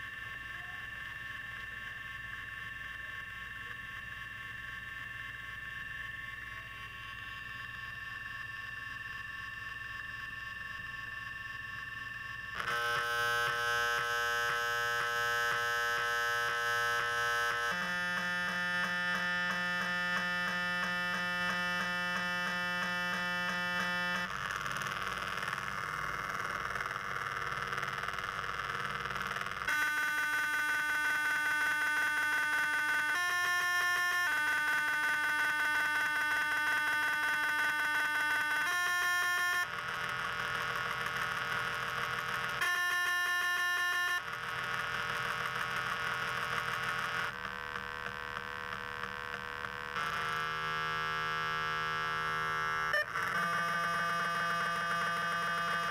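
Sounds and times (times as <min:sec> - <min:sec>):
synthesized electronic tones: 0:49.9 - 0:55.9.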